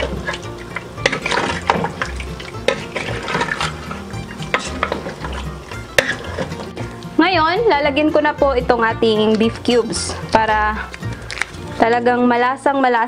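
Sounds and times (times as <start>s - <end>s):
spatula scraping a metal pot: 0.0s - 6.9s.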